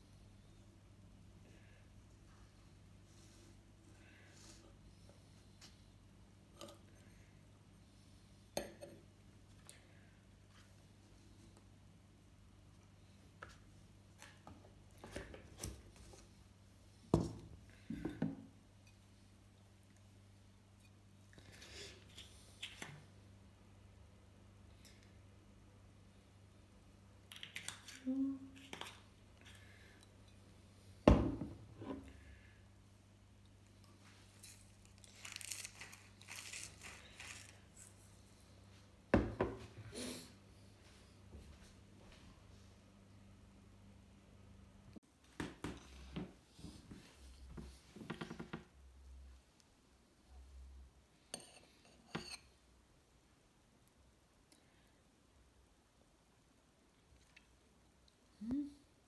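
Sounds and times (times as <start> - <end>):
tableware clicks and taps: 51.3 - 52.5.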